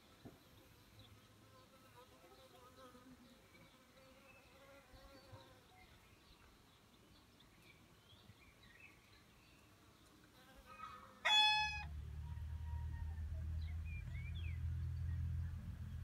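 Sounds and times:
faint insect buzzing: 1.2 - 5.7
rooster crowing: 11.2 - 13.6
bird chirps: 13.4 - 15.7.

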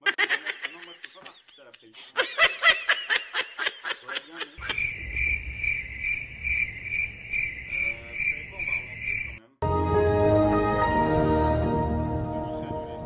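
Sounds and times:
person laughing: 0.0 - 4.9
crickets chirping: 4.6 - 9.6.

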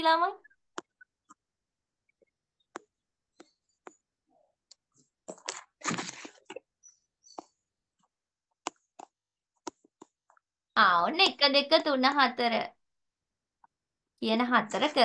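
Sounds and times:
rustling noise: 5.3 - 6.6.

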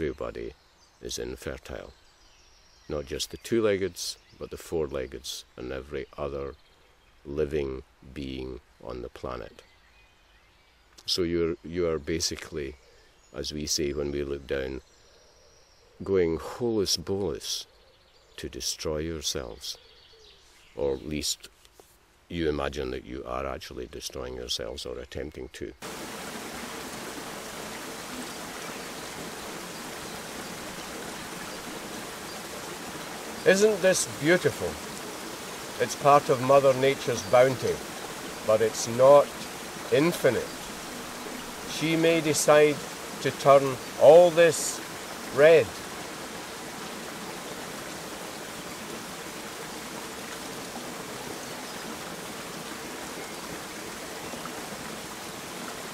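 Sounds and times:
stream water rushing: 25.8 - 55.9.

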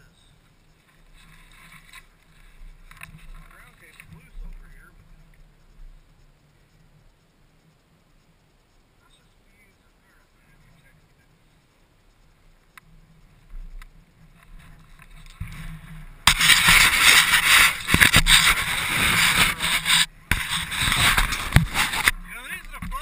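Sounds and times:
faint clicks: 0.3 - 16.1
rubbing and scraping on microphone: 0.7 - 6.8, 13.2 - 23.0.

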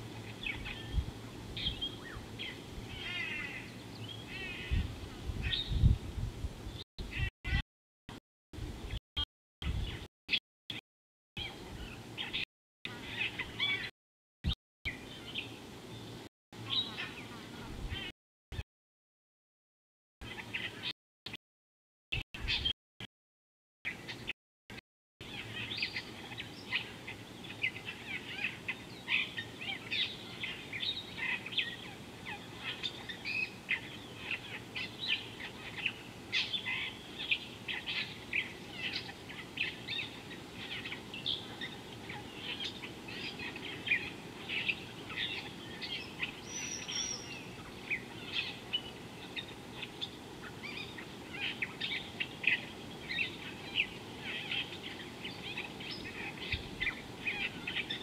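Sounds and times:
birds chirping in chorus: 0.0 - 6.0, 11.4 - 13.9, 14.9 - 18.1, 25.2 - 58.0.

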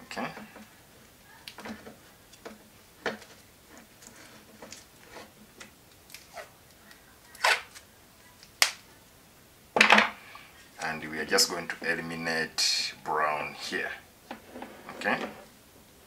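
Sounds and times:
wires rustling and clicking: 0.1 - 8.9.

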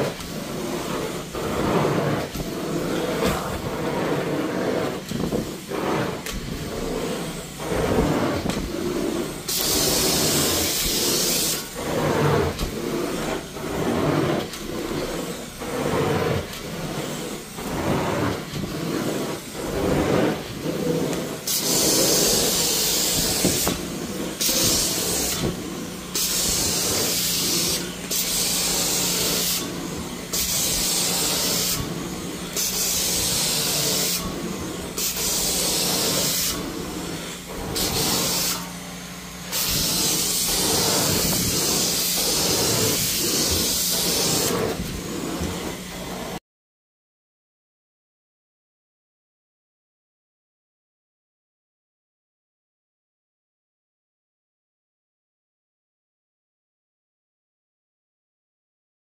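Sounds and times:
spray jet hissing: 0.0 - 13.3, 20.8 - 38.7, 39.4 - 44.7
carpet wand suction rush: 0.0 - 46.4.

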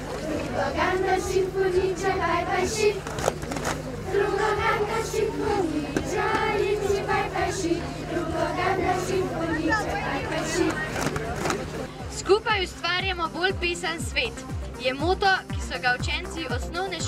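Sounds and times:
children singing together: 0.2 - 3.2, 4.0 - 10.9.

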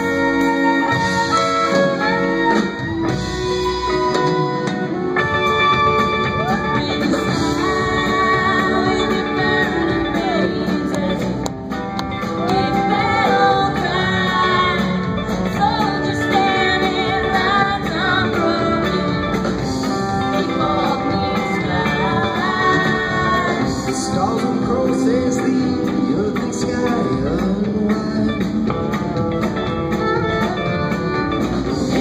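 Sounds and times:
electric guitars: 0.0 - 32.0
woman singing lead: 0.0 - 32.0
fiddle line: 28.8 - 32.0.

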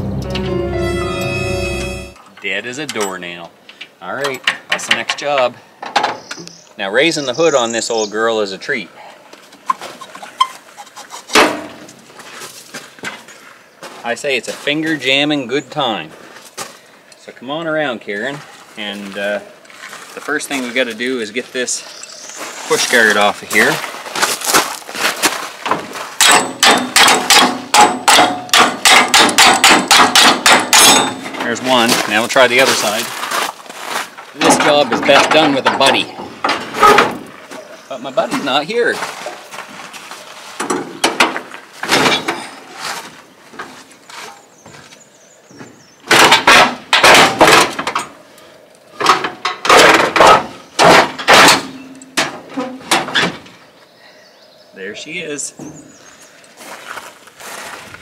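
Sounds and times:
hammer striking steel: 0.1 - 2.2, 26.2 - 31.4
metal hood scraping and banging: 11.0 - 11.9, 25.7 - 32.0, 34.4 - 37.3, 40.6 - 43.0, 46.1 - 48.1, 49.0 - 53.6.

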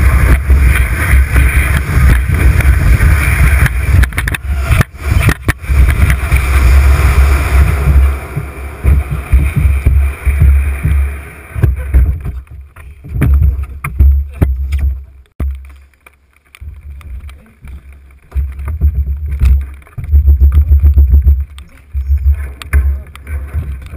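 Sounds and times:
canoe scraping over snow: 0.0 - 13.1
low rumble: 0.0 - 15.3, 16.6 - 23.9
scattered knocks: 7.6 - 15.6.

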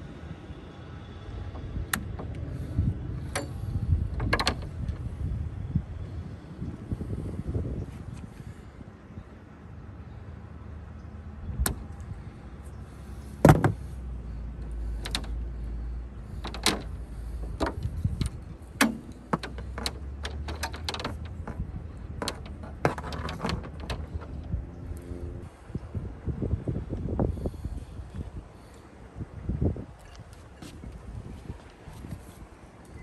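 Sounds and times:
steady low rumble: 0.0 - 30.0
cables clicking and knocking: 14.6 - 15.4, 16.3 - 25.0.

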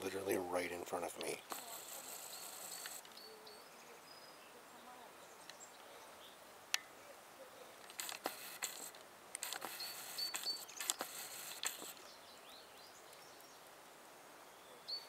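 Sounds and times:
squirrel nibbling seeds: 7.6 - 12.2
sharp click: 7.9 - 12.0.

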